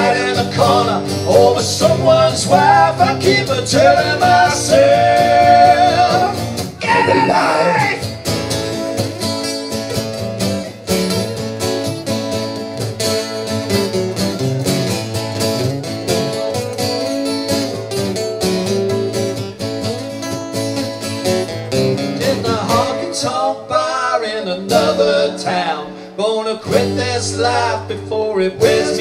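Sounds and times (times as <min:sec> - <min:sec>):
person singing: 0:00.0 - 0:08.1, 0:22.2 - 0:29.0
acoustic guitars strumming: 0:00.0 - 0:29.0.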